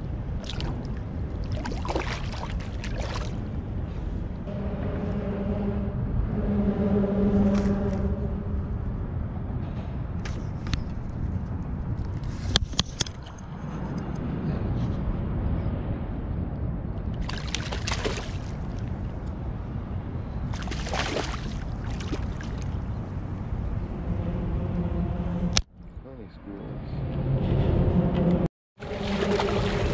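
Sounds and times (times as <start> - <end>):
steady low rumble: 0.0 - 12.5, 13.4 - 29.9
fish splashing at water surface: 17.2 - 18.7, 20.5 - 22.8.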